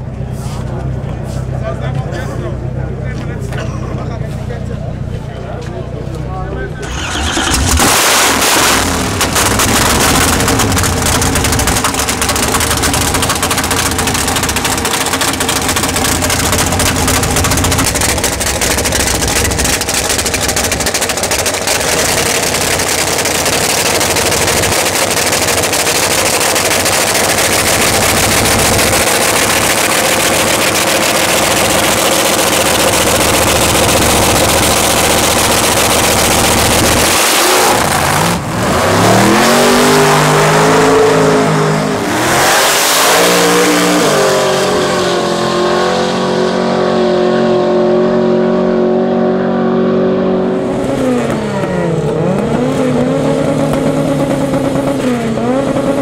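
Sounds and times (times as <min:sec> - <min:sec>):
dragster engine idling loudly: 0:00.0 - 0:07.9, 0:08.6 - 0:38.7.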